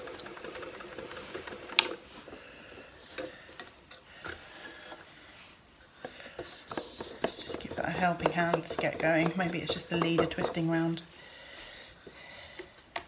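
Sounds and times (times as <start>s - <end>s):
spinning wheel motor hum: 0.0s - 2.4s.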